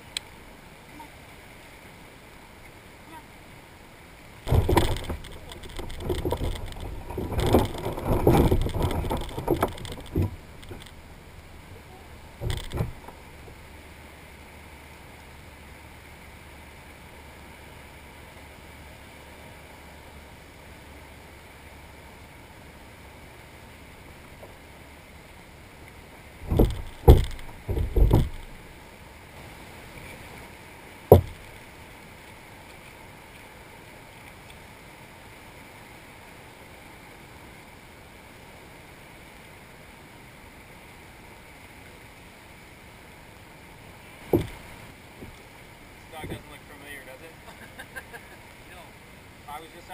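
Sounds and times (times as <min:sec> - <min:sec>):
faint hiss: 0:00.0 - 0:49.9
gear knocking on plastic kayak: 0:04.5 - 0:11.0, 0:12.4 - 0:13.2, 0:26.4 - 0:28.6, 0:31.1 - 0:31.5, 0:44.3 - 0:45.4.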